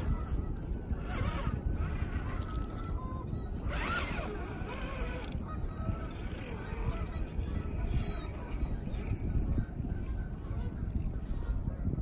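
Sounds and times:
electric motor whining: 0:00.0 - 0:09.4
steady low rumble: 0:00.0 - 0:12.0.

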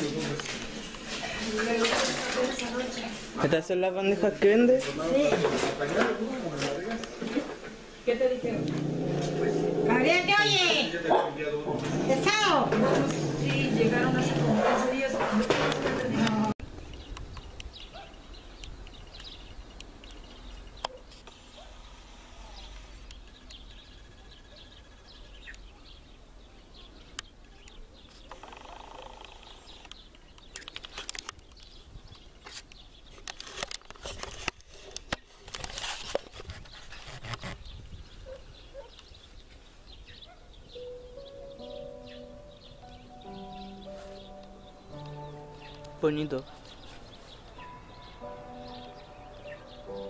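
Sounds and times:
small birds chirping: 0:16.0 - 0:35.8, 0:36.6 - 0:50.0
wind rumble on microphone: 0:36.3 - 0:38.8.

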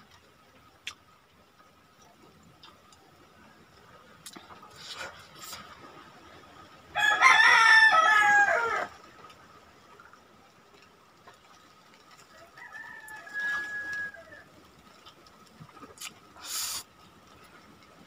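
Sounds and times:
rooster crowing: 0:07.0 - 0:09.0, 0:12.3 - 0:14.5.

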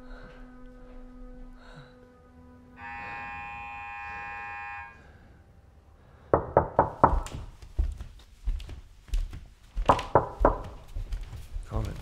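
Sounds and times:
knocking on a door: 0:06.3 - 0:07.5, 0:09.8 - 0:10.8.

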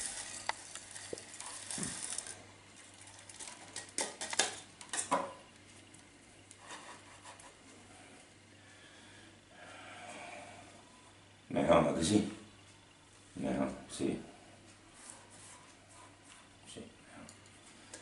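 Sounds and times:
gritty soil rustling and clattering: 0:00.0 - 0:05.2.

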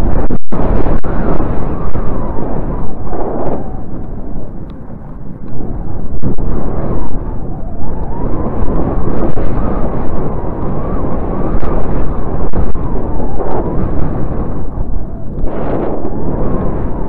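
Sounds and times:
wind buffeting microphone: 0:00.0 - 0:17.0
faint wavering whistle: 0:07.0 - 0:11.4.

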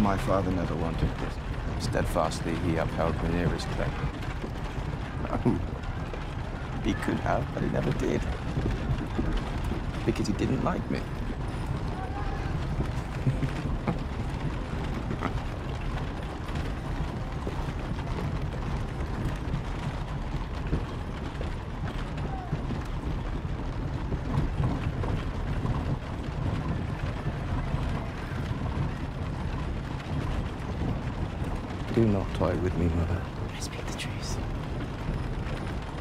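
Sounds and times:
carriage rumbling: 0:00.0 - 0:36.0
wheels rattling and creaking: 0:00.0 - 0:36.0.

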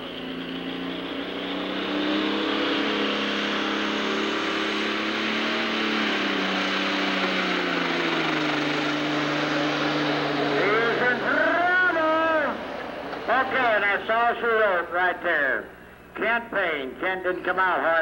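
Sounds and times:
diesel engine running under load: 0:00.0 - 0:16.2.

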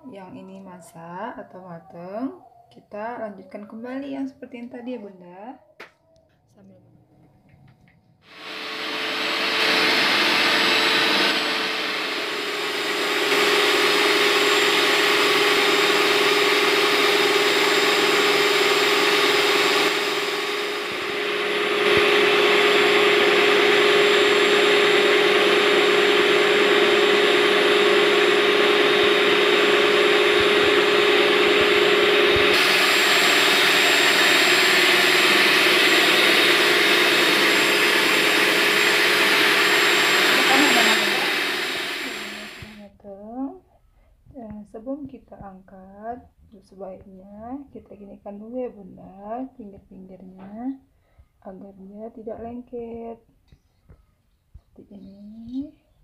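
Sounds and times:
small electric motor whirring: 0:08.3 - 0:42.8.

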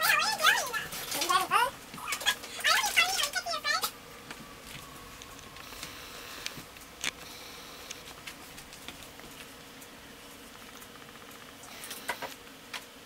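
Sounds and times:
high-pitched voice: 0:00.0 - 0:04.0.

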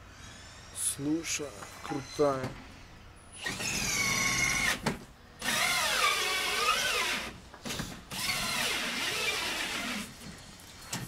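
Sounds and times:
power drill motor whirring: 0:03.4 - 0:10.2.

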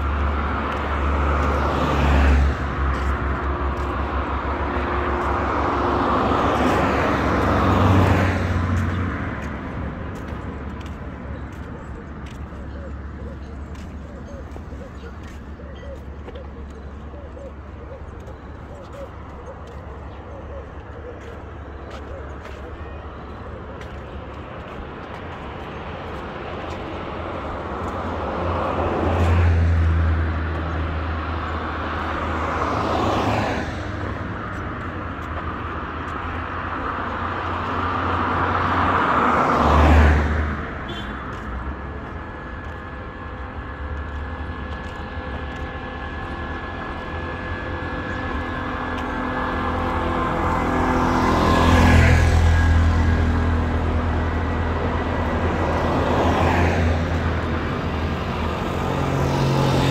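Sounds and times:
cars passing on wet road: 0:00.0 - 0:59.9
auto-rickshaw engine humming: 0:40.6 - 0:59.9.

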